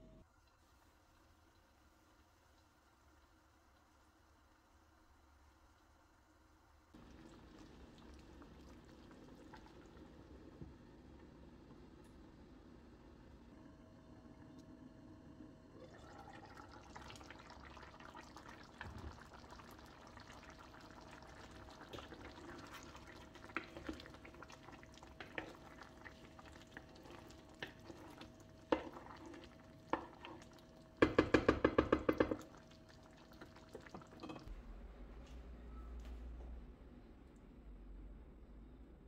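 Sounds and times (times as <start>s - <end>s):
stew simmering in a pan: 0.2s - 34.5s
wooden spoon stirring: 20.8s - 34.5s
spoon knocking against pan: 31.0s - 32.4s.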